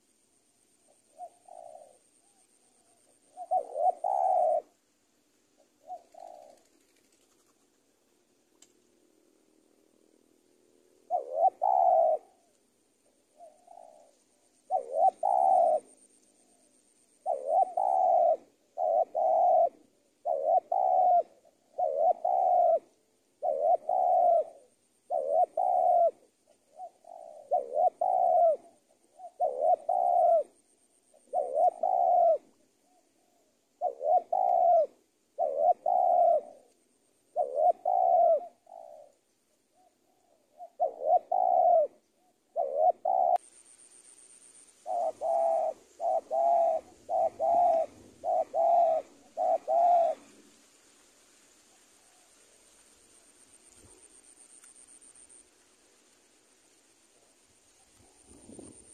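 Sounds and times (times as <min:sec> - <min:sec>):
dove cooing: 0:00.0 - 0:04.8, 0:05.5 - 0:07.8, 0:09.0 - 0:43.5, 0:44.5 - 0:50.6, 0:57.1 - 0:58.9.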